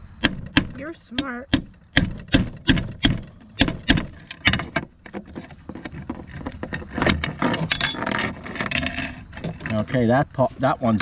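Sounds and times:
hammer striking steel punch: 0.2 - 4.2
chain links clicking and rattling: 4.1 - 10.0.

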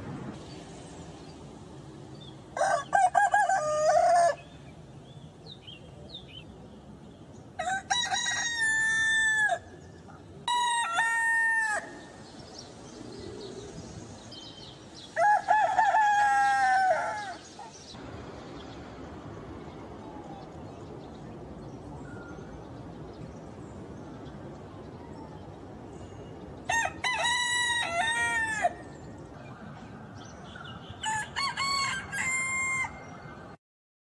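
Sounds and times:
rooster crowing: 2.6 - 4.4, 7.6 - 9.7, 10.4 - 12.1, 15.2 - 17.4, 26.7 - 28.9, 31.0 - 33.1
faint bird chirps: 19.5 - 23.4.

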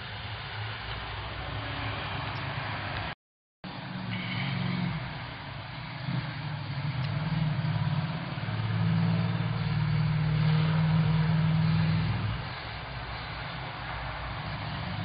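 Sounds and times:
car engine running: 3.7 - 15.0.

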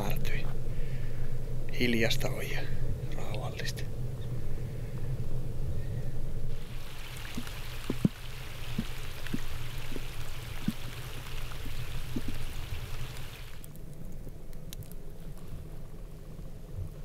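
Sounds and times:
low steady rumble: 0.0 - 17.0
light rain on a lake: 6.5 - 17.0.

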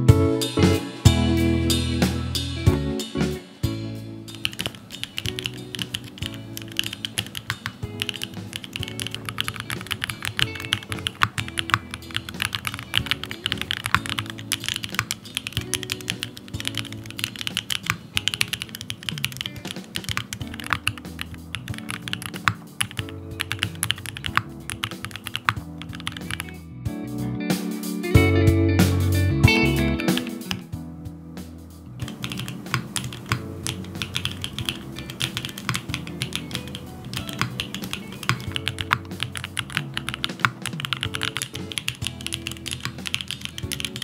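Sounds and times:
background music: 0.0 - 44.0
mechanical keyboard key clacks: 4.3 - 26.5, 32.0 - 44.0.

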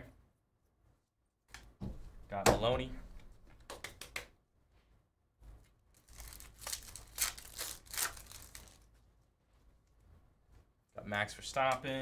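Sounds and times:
foil wrapper tearing and crinkling: 6.0 - 8.9.

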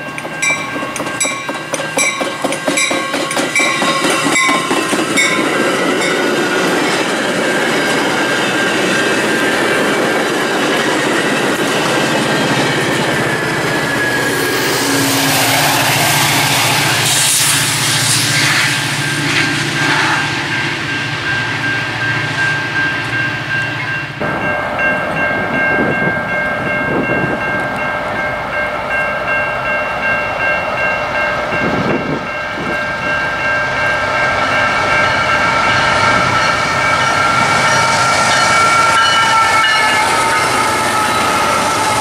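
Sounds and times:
diesel locomotive engine rumble: 0.0 - 42.0
locomotive air horn: 14.4 - 20.3, 35.4 - 42.0.

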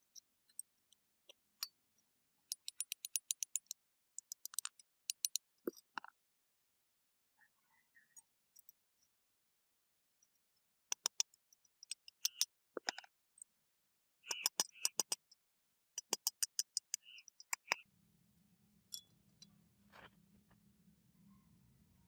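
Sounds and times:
faint low hum: 18.1 - 22.0.

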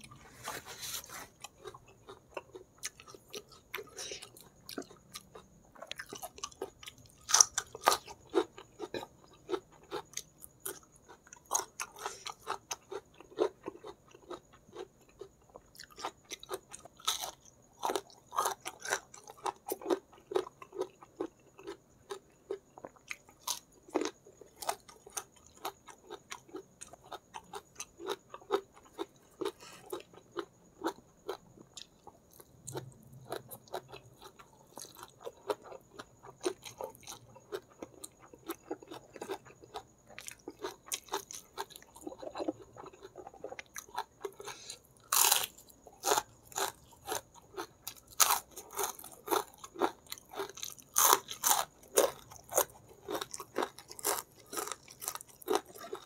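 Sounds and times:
person chewing with wet smacks: 24.0 - 44.8.

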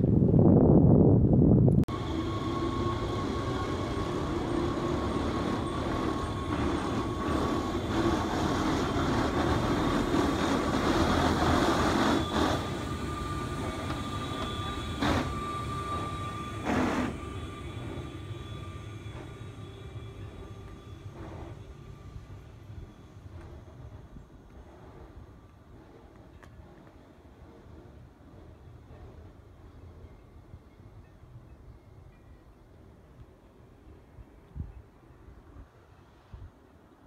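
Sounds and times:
high whine: 0.0 - 28.0
train rumbling on rails: 0.0 - 37.0.

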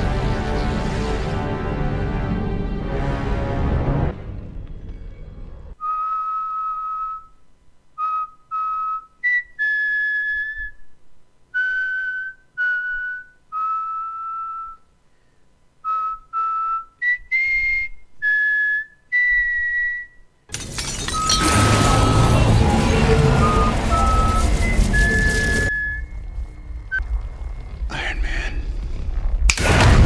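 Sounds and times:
whistled tune: 5.8 - 7.4, 8.0 - 10.9, 11.6 - 14.9, 15.8 - 20.3, 21.1 - 27.1.

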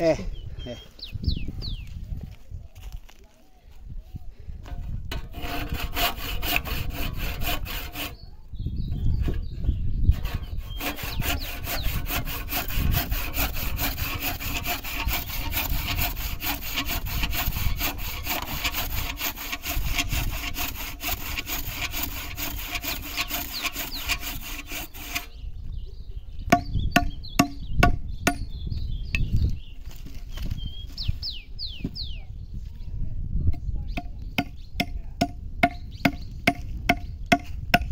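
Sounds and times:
handsaw cutting wood: 5.1 - 8.2, 10.1 - 25.3
hatchet knocking on wood: 26.5 - 28.5, 34.0 - 37.9.

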